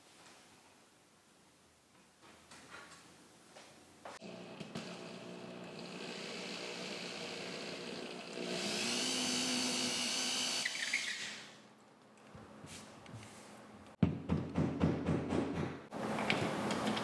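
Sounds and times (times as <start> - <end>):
cordless drill whining: 4.7 - 11.6.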